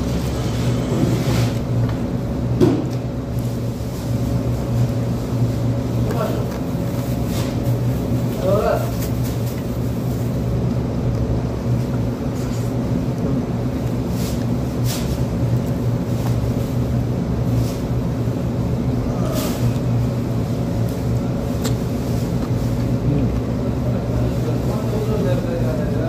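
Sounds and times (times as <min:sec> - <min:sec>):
low mechanical hum: 0:00.0 - 0:26.0
person eating and chewing: 0:09.4 - 0:16.6, 0:19.0 - 0:23.8.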